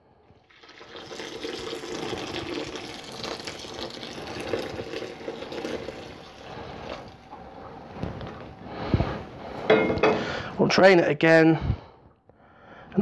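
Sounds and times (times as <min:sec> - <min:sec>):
water pouring and splashing: 0:00.4 - 0:07.5.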